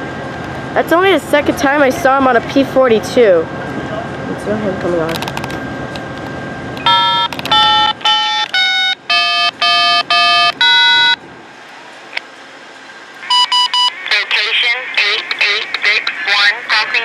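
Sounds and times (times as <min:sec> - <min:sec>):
electronic beeping tune: 0:06.8 - 0:11.2, 0:13.3 - 0:14.0.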